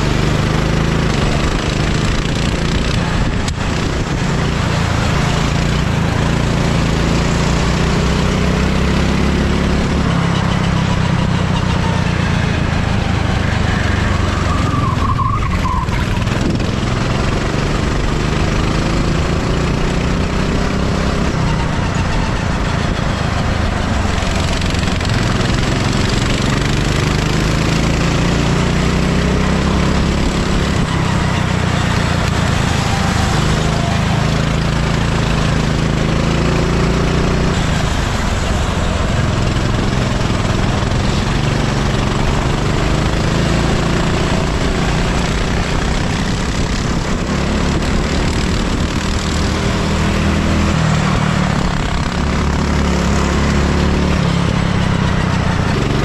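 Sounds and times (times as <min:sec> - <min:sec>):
go-kart engine revving: 0:00.0 - 0:56.0
wind and tyre noise: 0:00.0 - 0:56.0.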